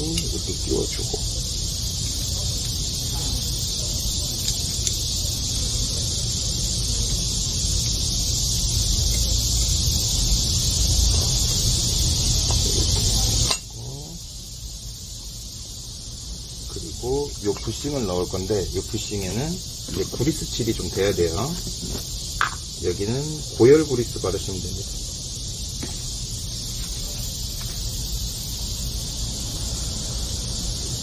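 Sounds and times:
high-pitched insect-like hiss: 0.0s - 31.0s
small parts clicking: 4.3s - 5.2s, 8.6s - 9.9s.

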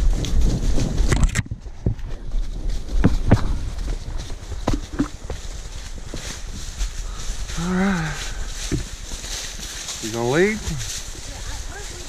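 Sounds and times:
horse hooves on dry leaves: 0.0s - 12.0s.

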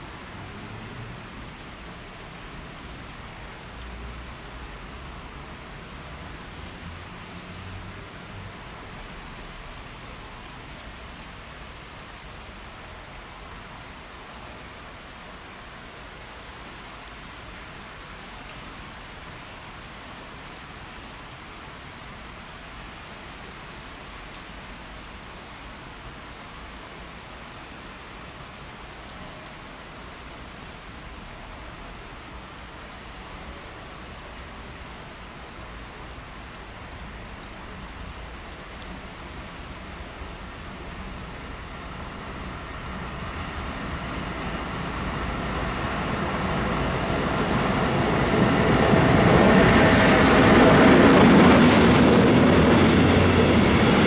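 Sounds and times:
rain-like hiss: 0.0s - 54.0s
freight train rumbling: 41.6s - 54.0s.

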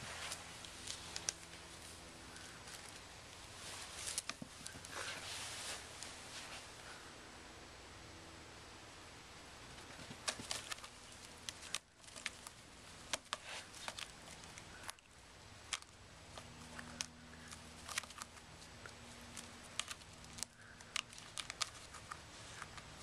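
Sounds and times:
kitten clawing rope toy: 9.8s - 23.0s.

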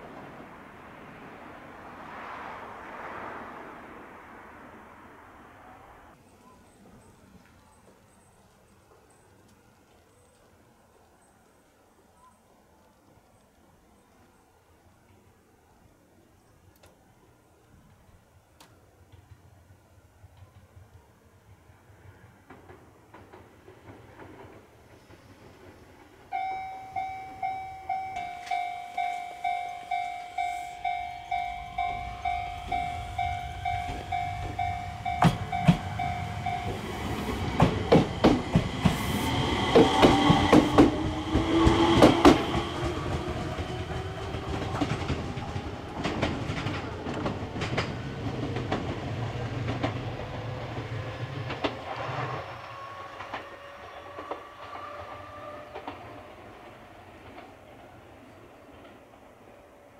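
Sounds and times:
train motor whine: 26.3s - 46.3s
level crossing bell ringing: 26.4s - 37.2s.

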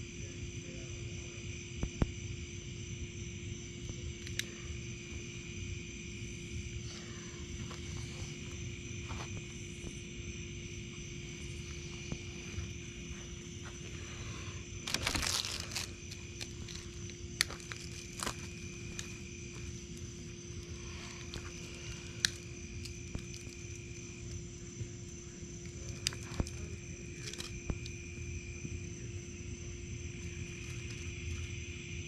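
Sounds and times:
insects trilling: 0.0s - 32.0s
campfire popping: 10.9s - 28.3s.

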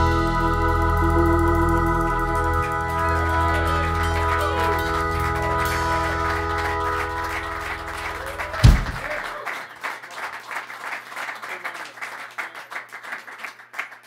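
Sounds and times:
rock band final chord: 0.0s - 9.2s
audience applause: 0.0s - 14.0s.

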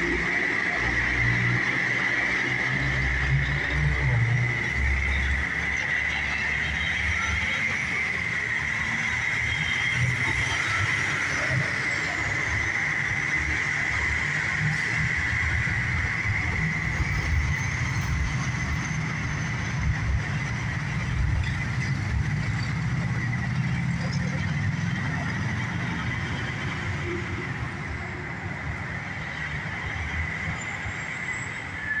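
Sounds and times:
traffic engine and tyre rumble: 0.0s - 32.0s.

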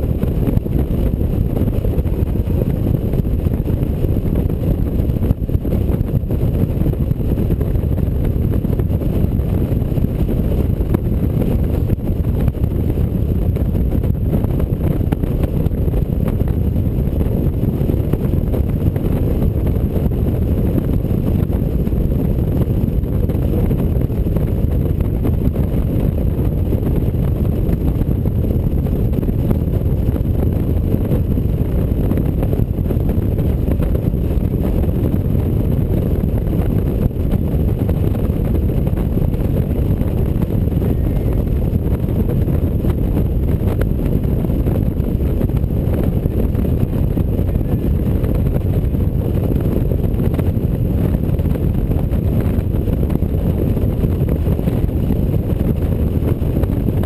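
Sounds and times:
motorcycle engine and road noise: 0.0s - 57.0s
wind buffeting microphone: 0.0s - 57.0s.

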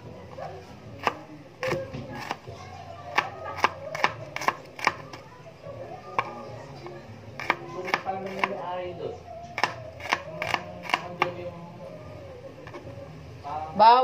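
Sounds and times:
knife chopping on cutting board: 1.0s - 2.4s, 3.1s - 5.2s, 7.4s - 8.6s, 9.6s - 11.4s.

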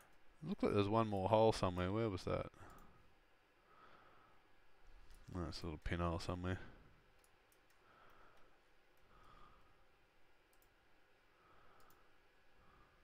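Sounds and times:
computer mouse clicks: 7.1s - 9.1s, 10.5s - 10.8s, 11.8s - 12.1s.

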